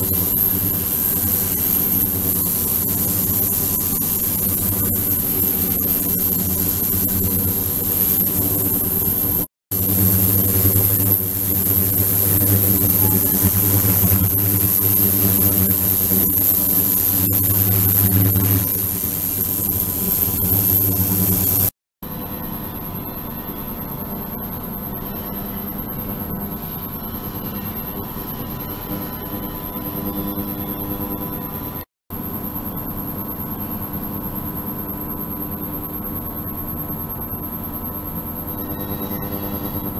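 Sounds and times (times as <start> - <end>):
ultrasonic tank hum and hiss: 0.0 - 16.5
constant high whine: 0.0 - 39.9
ultrasonic tank buzz and hum: 0.0 - 39.9.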